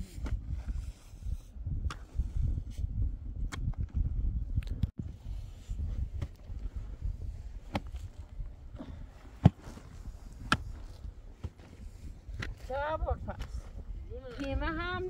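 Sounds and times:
pickaxe striking stony earth: 7.7s - 8.1s, 9.4s - 11.7s.

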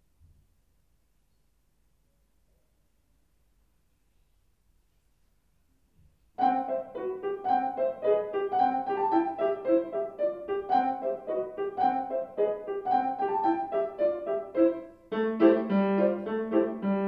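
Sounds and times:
grand piano run of notes: 6.4s - 17.0s.

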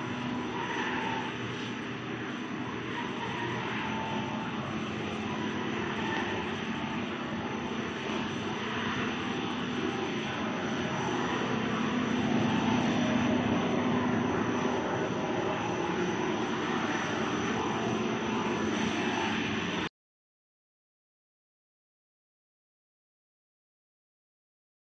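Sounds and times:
machine drone with rushing hiss: 0.0s - 19.9s.

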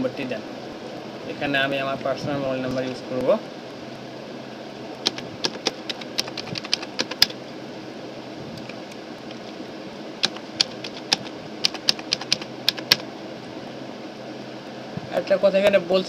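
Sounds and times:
steady low hum: 0.0s - 16.0s
computer keyboard typing: 5.0s - 7.4s, 8.6s - 9.6s, 10.2s - 13.0s.

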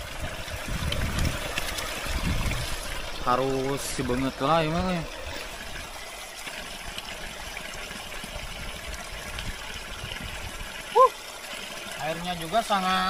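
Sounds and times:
water trickling: 0.0s - 13.0s.

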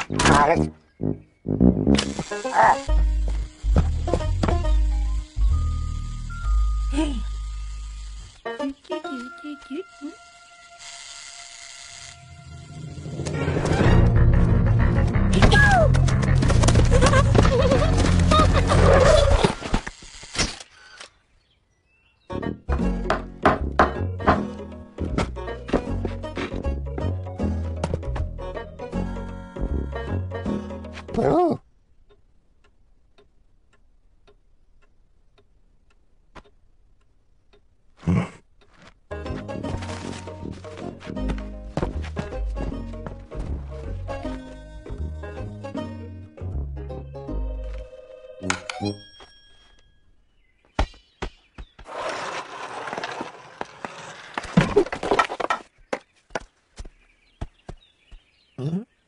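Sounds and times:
cartoon knocks and thuds: 22.7s - 24.5s
clock ticking: 32.0s - 37.8s.

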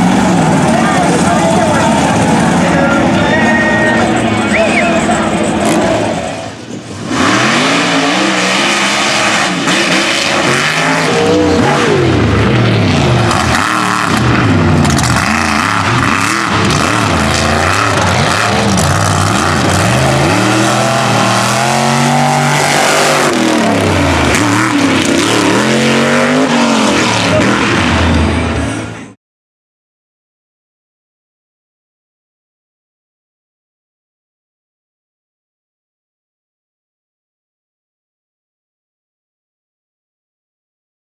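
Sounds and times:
truck engines revving hard: 0.0s - 29.2s.

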